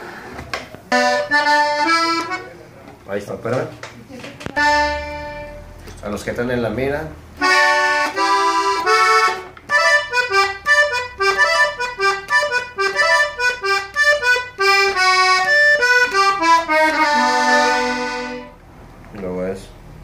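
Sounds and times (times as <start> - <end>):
button accordion playing: 0.9 - 2.5, 4.6 - 5.8, 7.4 - 18.6.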